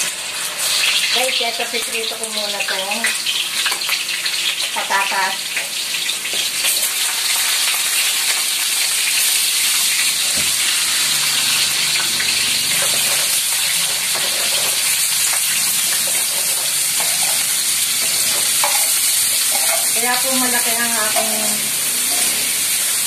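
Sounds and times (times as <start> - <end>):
vegetables sizzling in oil: 0.0 - 23.0.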